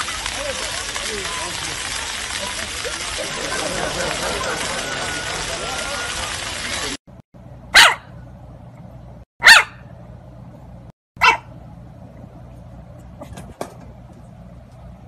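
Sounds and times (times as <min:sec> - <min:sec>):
puppy barking: 0:07.7 - 0:08.1, 0:09.4 - 0:09.9, 0:11.2 - 0:11.5.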